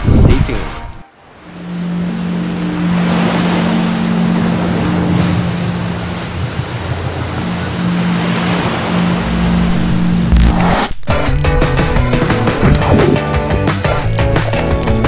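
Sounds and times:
ocean surf washing: 0:01.1 - 0:15.0
low steady hum: 0:01.2 - 0:11.0.

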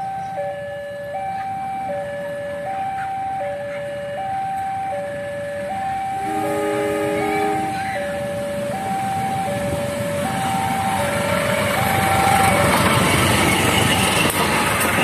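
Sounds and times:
train rumbling: 0:05.9 - 0:15.0
locomotive air horn: 0:06.2 - 0:08.0.

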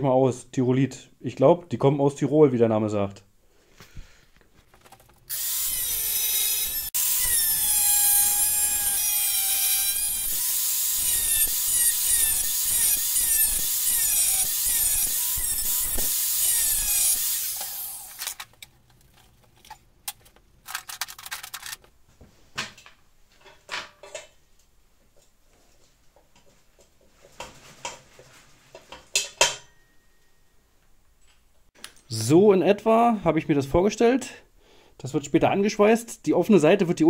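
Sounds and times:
angle grinder cutting steel: 0:05.3 - 0:18.4.

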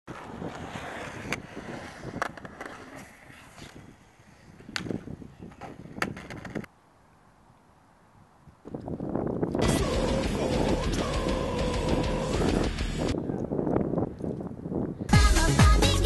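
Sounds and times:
skateboard clacking on concrete: 0:04.7 - 0:06.7.

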